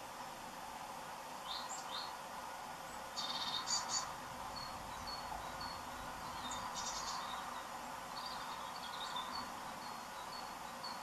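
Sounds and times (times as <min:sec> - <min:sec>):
songbirds high notes: 0:02.9 - 0:11.0
bird twittering: 0:03.2 - 0:11.0.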